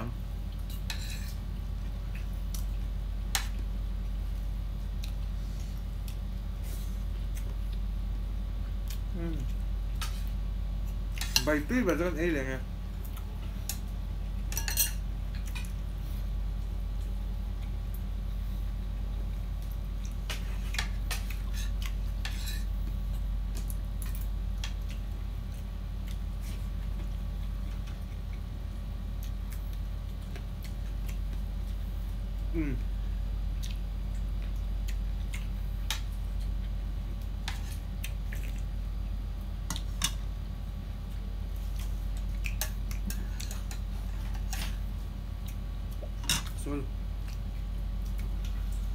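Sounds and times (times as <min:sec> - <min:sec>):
steady low hum: 0:00.0 - 0:48.9
spoons clinking on plates: 0:14.5 - 0:15.0.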